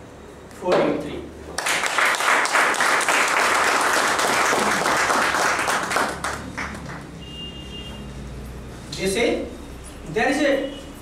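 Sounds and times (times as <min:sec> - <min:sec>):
audience applauding: 0:01.6 - 0:07.1.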